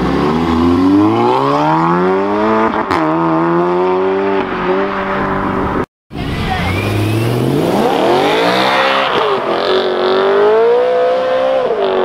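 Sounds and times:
car engine accelerating hard: 0:06.4 - 0:12.0.

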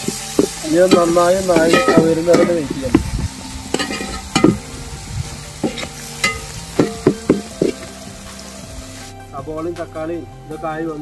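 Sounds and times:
metal spatula scraping a pan: 0:00.0 - 0:04.8, 0:05.5 - 0:08.0
oil sizzling: 0:00.0 - 0:09.4.

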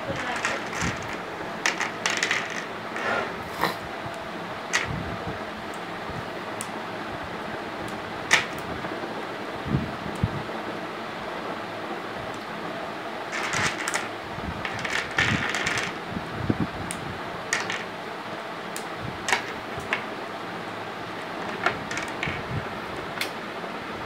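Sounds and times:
plastic blocks clicking together: 0:00.0 - 0:02.7, 0:04.7 - 0:05.0, 0:08.3 - 0:08.7, 0:13.3 - 0:16.0, 0:17.5 - 0:18.0, 0:18.8 - 0:20.1, 0:21.4 - 0:22.5
plastic blocks clattering: 0:00.0 - 0:03.2, 0:04.7 - 0:05.0, 0:08.3 - 0:08.6, 0:13.3 - 0:16.0, 0:17.5 - 0:18.0, 0:19.3 - 0:20.1, 0:21.4 - 0:22.5.

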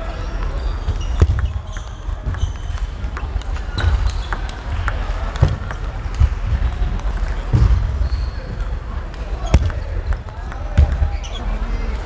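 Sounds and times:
table tennis ball clicks: 0:01.1 - 0:07.4.

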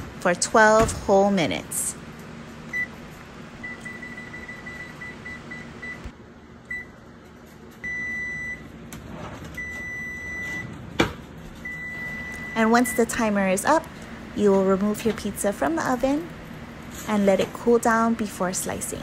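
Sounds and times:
low steady hum: 0:00.0 - 0:19.0
oven control beeping: 0:03.6 - 0:07.0, 0:07.8 - 0:08.7, 0:09.5 - 0:10.8, 0:11.6 - 0:13.2.

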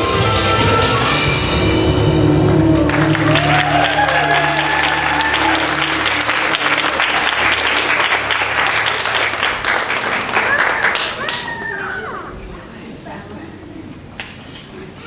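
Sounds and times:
belly-dance music: 0:00.0 - 0:09.7
audience whooping: 0:01.5 - 0:12.3
audience applause: 0:02.4 - 0:12.2.

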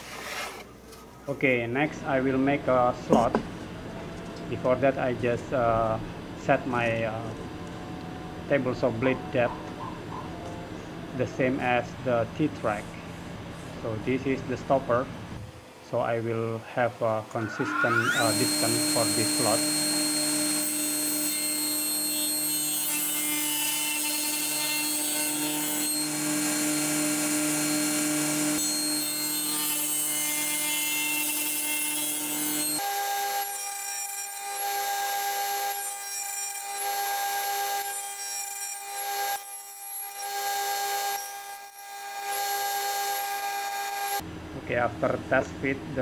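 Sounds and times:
table saw cutting board: 0:00.0 - 0:00.7, 0:17.3 - 0:44.2.

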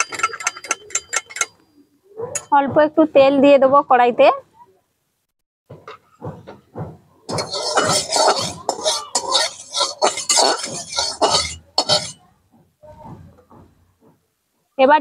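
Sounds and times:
metal spatula scraping metal pan: 0:00.0 - 0:01.6, 0:07.3 - 0:12.2.

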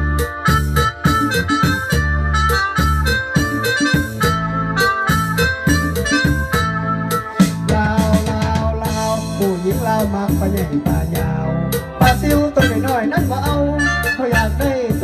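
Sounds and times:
keyboard melody: 0:00.0 - 0:15.0
programmed drum beat: 0:00.0 - 0:15.0
man singing: 0:07.4 - 0:15.0.

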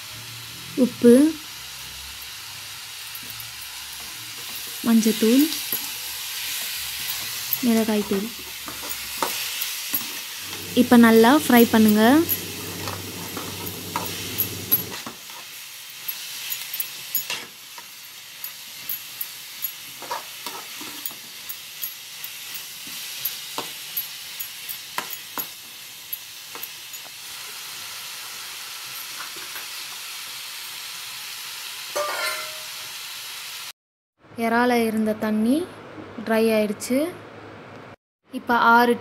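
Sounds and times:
prawns sizzling in a pan: 0:00.0 - 0:33.8
spatula scraping and tapping pan: 0:06.5 - 0:15.5, 0:16.1 - 0:25.6.

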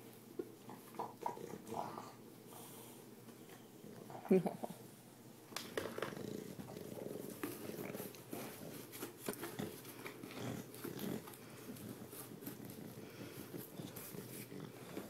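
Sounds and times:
dog breathing and snuffling: 0:05.9 - 0:15.0.

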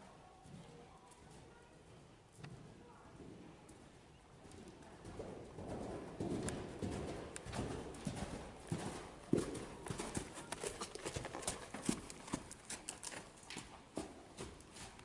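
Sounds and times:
horse hoofbeats on sand: 0:05.0 - 0:15.0.

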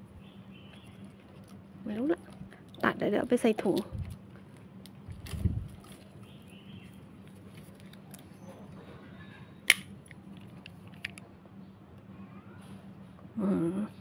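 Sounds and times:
steady low hum: 0:00.0 - 0:14.0
plastic rustling: 0:00.8 - 0:08.4.

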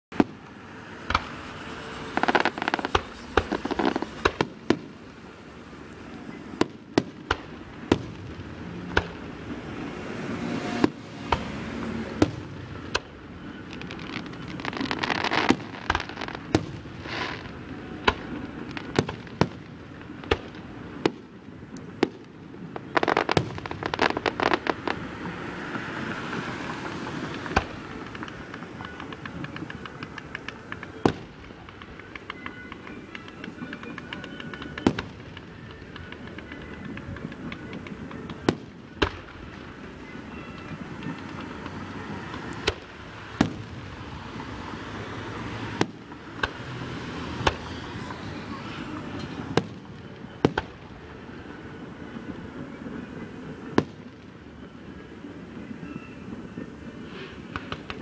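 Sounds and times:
fireworks bangs: 0:00.1 - 0:58.0
fireworks crackling pops: 0:00.1 - 0:58.0.

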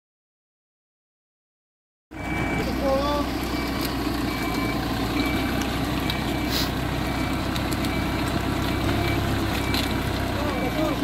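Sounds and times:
diesel engine running: 0:02.1 - 0:11.0
reversing alarm beeping: 0:02.1 - 0:11.0.

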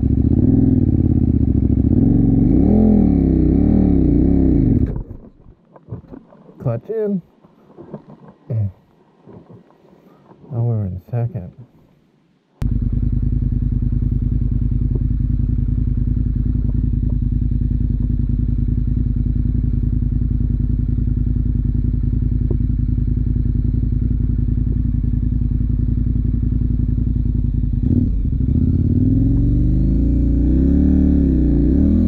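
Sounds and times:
motorcycle engine running: 0:00.0 - 0:05.3, 0:12.6 - 0:32.0.

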